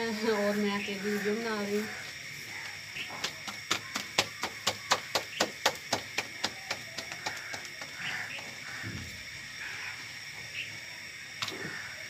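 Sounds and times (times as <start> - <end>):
dough slapped between palms: 3.0 - 8.0.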